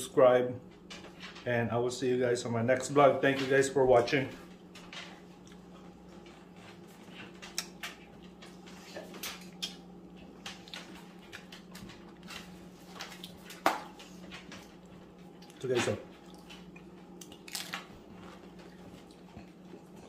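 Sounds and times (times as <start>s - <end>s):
steady low hum: 0.0s - 20.0s
man chewing food: 4.4s - 20.0s.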